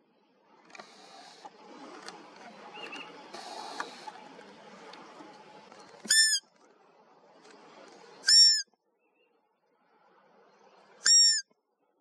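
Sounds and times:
deer whistled calls: 6.1 - 6.4, 8.2 - 8.7, 11.0 - 11.5.

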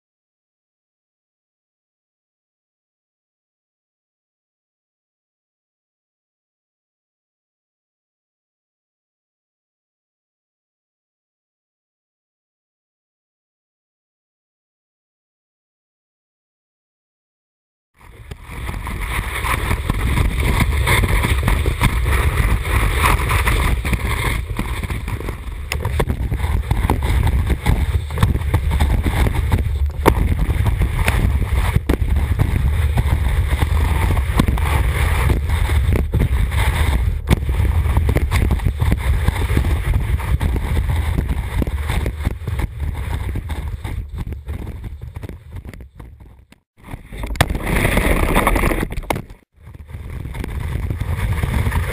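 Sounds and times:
deep steady rumble: 18.0 - 51.9
wind buffeting microphone: 18.0 - 51.9.

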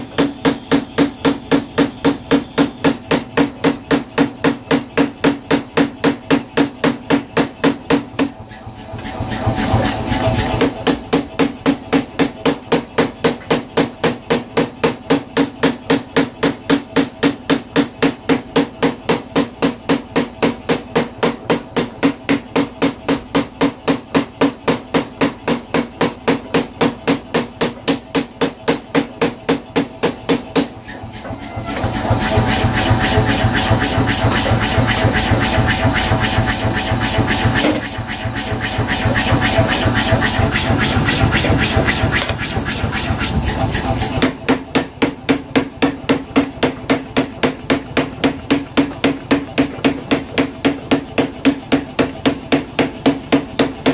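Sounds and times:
power hammer pounding metal: 0.0 - 53.9
mechanical running noise: 30.8 - 44.5.

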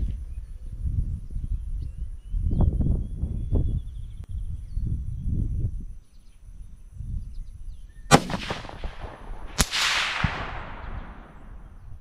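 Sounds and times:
rifle shots with echo: 8.1 - 11.8.

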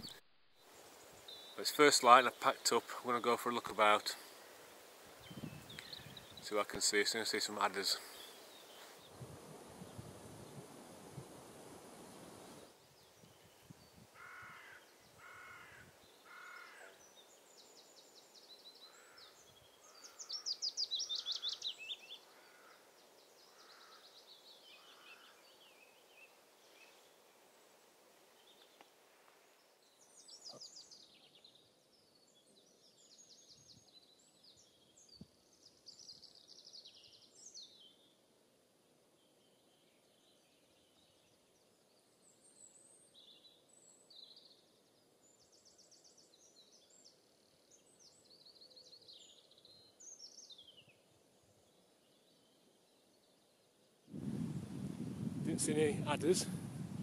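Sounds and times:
songbirds trilling: 0.0 - 9.2, 12.6 - 28.9.

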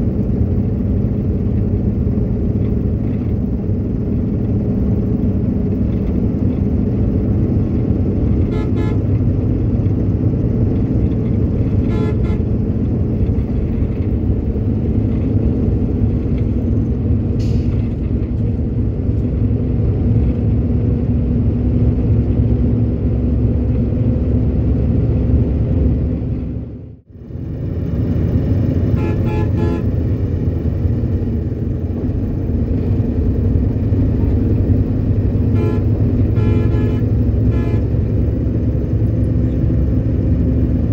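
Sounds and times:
coach engine and road noise: 0.0 - 40.9
horn toots: 8.4 - 9.2, 11.7 - 12.5, 28.9 - 30.0, 35.5 - 38.1.

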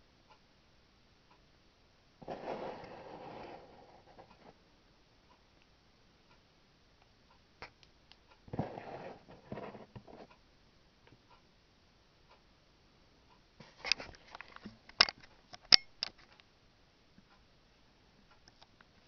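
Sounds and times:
soft rustle: 2.2 - 4.6, 8.5 - 10.4
sharp clicks and taps: 7.0 - 8.4.

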